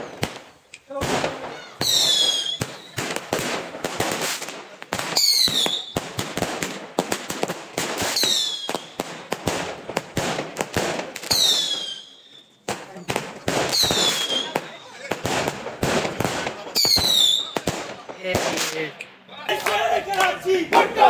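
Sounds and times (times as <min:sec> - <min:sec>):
fireworks bangs and crackling: 0:00.0 - 0:21.0
falling firework whistle: 0:01.8 - 0:03.0, 0:05.2 - 0:06.0, 0:08.1 - 0:08.9, 0:11.3 - 0:12.6, 0:13.7 - 0:15.0.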